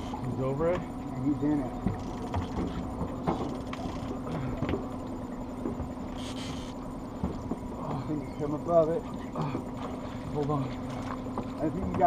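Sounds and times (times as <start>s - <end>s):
outboard motor humming: 0.0s - 12.0s.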